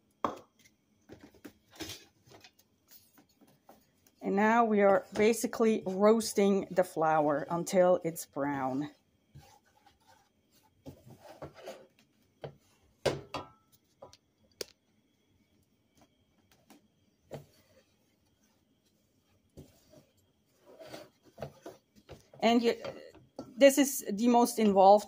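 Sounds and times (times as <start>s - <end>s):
wooden spoon scraping saucepan: 1.7s - 12.9s, 17.2s - 25.0s.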